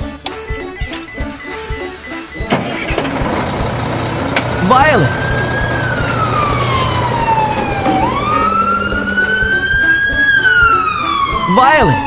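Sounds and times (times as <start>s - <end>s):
cartoon siren wailing: 4.6s - 12.0s.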